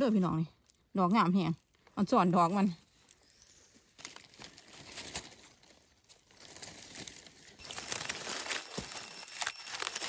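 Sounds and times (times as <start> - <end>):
hand rustling dry leaves: 0.0 - 10.0.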